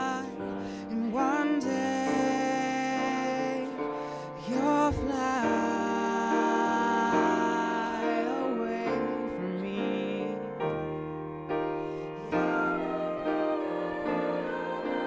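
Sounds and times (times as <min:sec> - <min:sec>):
jazz choir singing harmony: 0:11.7 - 0:15.0.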